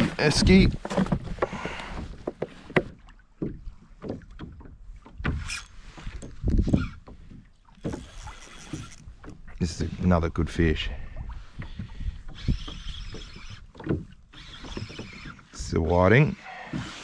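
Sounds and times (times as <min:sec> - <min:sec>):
knocks and bumps on a kayak: 0:00.0 - 0:08.1, 0:13.7 - 0:14.2.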